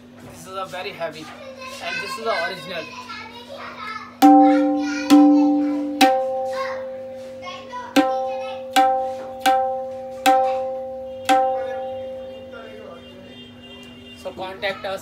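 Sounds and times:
tabla drum strokes: 0:04.2 - 0:12.3.

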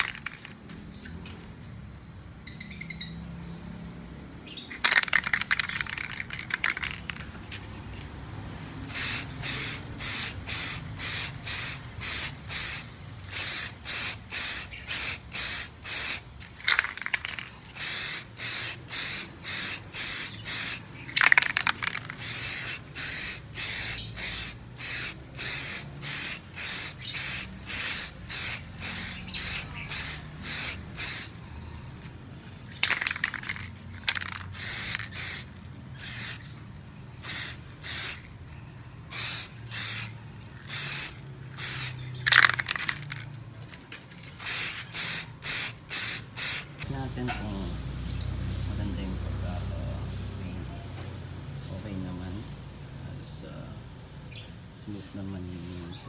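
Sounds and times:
aerosol can spraying in bursts: 0:08.9 - 0:31.4, 0:32.8 - 0:36.5, 0:37.2 - 0:38.2, 0:39.1 - 0:43.2, 0:44.4 - 0:46.8.

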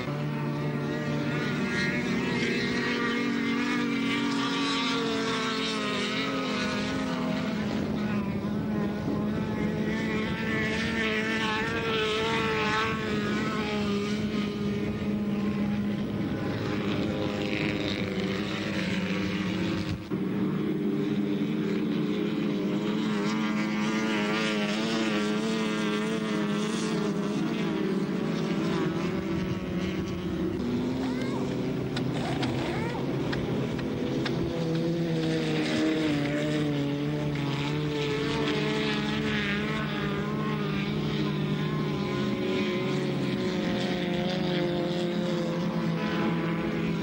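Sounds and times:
race car engines: 0:00.0 - 0:47.0.

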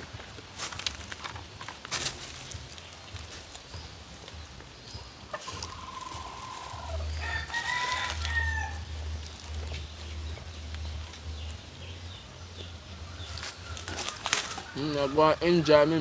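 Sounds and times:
rooster crowing: 0:05.8 - 0:09.0.

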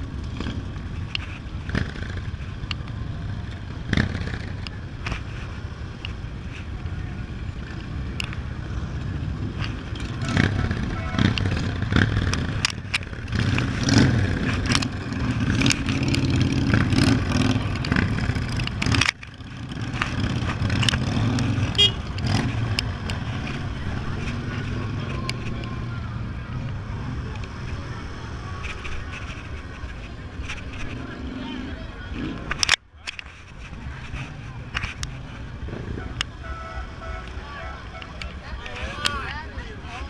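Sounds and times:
motorcycle engines in traffic: 0:00.0 - 0:40.0
clicks and clatter: 0:09.5 - 0:25.8, 0:28.5 - 0:31.1, 0:32.2 - 0:36.3.

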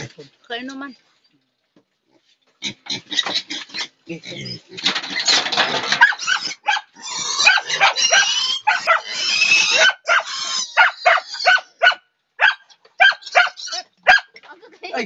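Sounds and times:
piglet squealing: 0:03.0 - 0:14.2.

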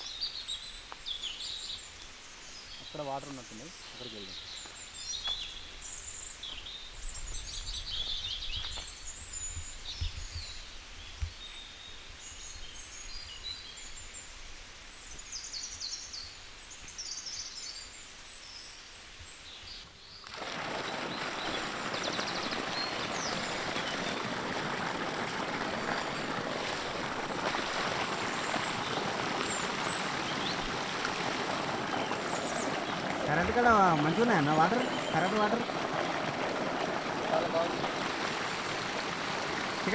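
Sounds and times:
small birds chirping: 0:00.0 - 0:14.0, 0:19.2 - 0:39.9
water gushing from pipe: 0:20.2 - 0:39.9.

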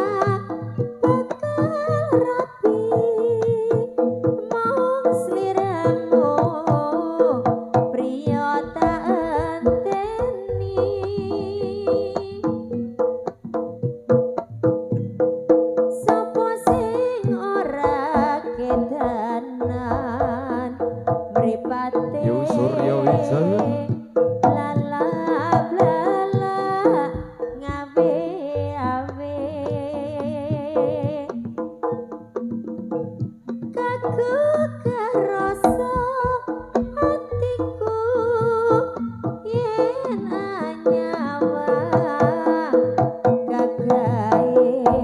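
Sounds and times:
hand drums fast rhythm: 0:00.0 - 0:45.0.

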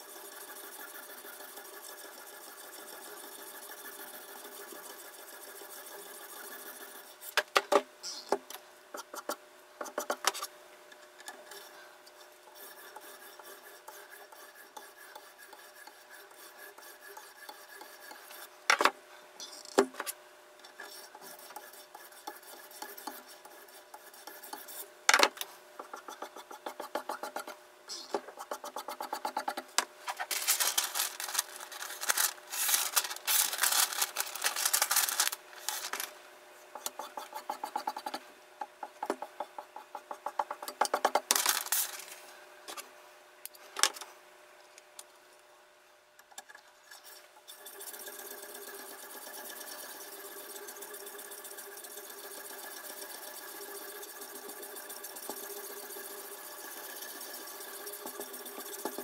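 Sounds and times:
steady hum: 0:00.0 - 0:45.9.

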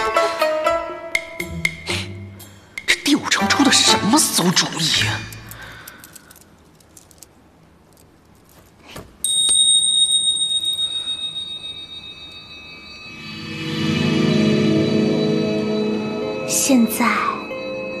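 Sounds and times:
music: 0:00.0 - 0:04.5, 0:12.4 - 0:18.0
small metal bell ringing: 0:09.2 - 0:13.4.

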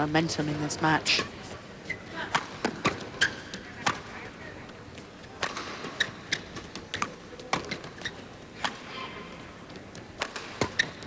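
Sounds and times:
rackets hitting shuttlecock: 0:05.4 - 0:07.9, 0:08.6 - 0:08.9, 0:09.7 - 0:11.0.

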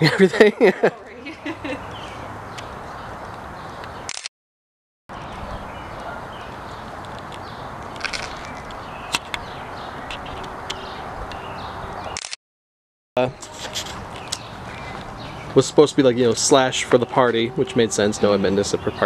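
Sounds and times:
steady outdoor hiss: 0:00.0 - 0:04.1, 0:05.1 - 0:12.2, 0:13.2 - 0:19.0
sharp clicks: 0:12.1 - 0:12.4.

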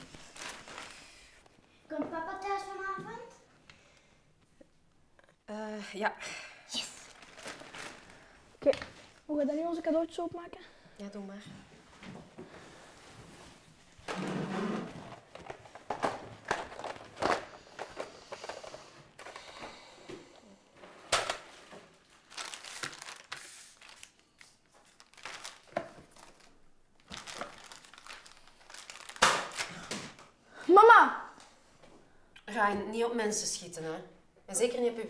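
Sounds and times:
plastic packaging crinkling: 0:00.0 - 0:01.4, 0:07.0 - 0:08.4, 0:15.1 - 0:19.4, 0:22.0 - 0:30.0.

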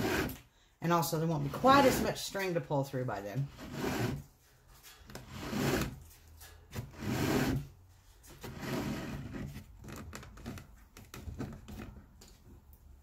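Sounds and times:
lace dragging through leather: 0:03.5 - 0:04.3, 0:05.2 - 0:06.2, 0:06.8 - 0:10.0.

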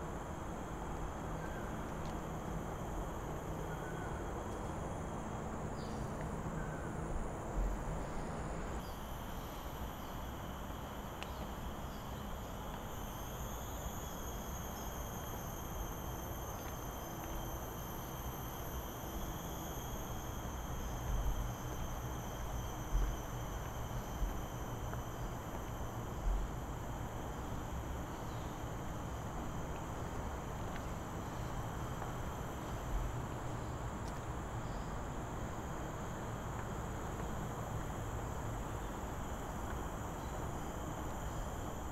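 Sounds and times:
insects droning: 0:00.0 - 0:41.9
low outdoor rumble: 0:15.2 - 0:41.9.

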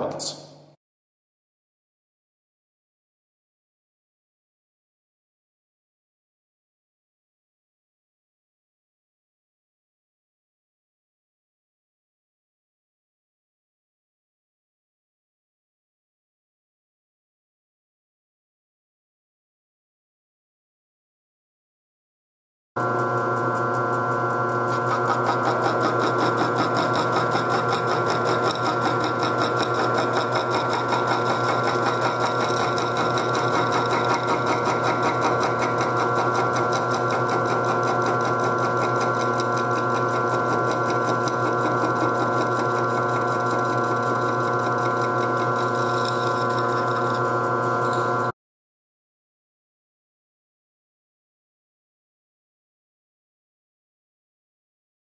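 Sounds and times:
milling machine cutting metal: 0:22.8 - 0:48.3.

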